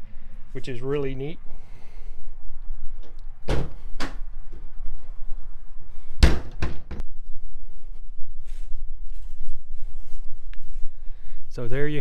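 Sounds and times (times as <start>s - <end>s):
wooden coop door slamming: 3.5s - 4.2s, 6.2s - 7.0s.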